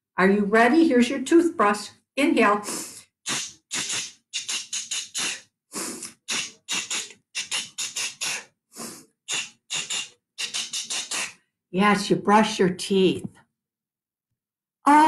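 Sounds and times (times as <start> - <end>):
woman making hissing breath sounds: 2.6 - 11.5.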